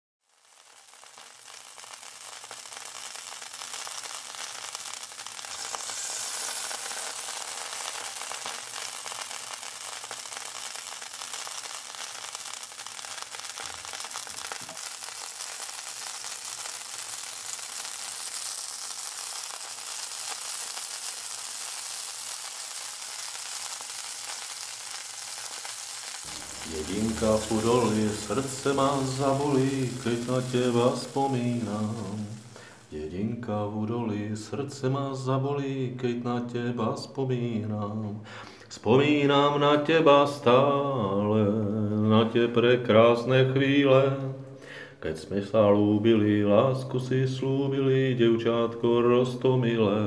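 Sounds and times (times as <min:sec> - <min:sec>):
steady rain hiss: 0:00.2 - 0:35.8.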